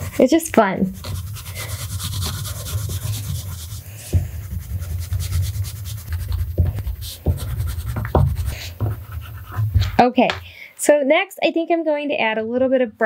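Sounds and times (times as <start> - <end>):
crayon scribbling on paper: 0.0 - 10.0.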